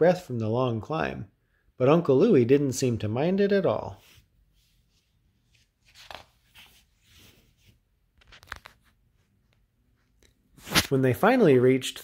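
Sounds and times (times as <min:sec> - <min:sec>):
paper page turning: 0:05.4 - 0:09.0, 0:10.6 - 0:11.0.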